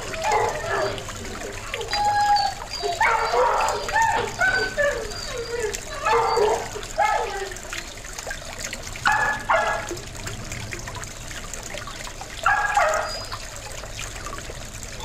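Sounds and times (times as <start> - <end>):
fountain trickling: 0.0 - 15.0
dog barking: 3.0 - 4.8, 6.0 - 7.4, 9.1 - 9.9, 12.4 - 13.3.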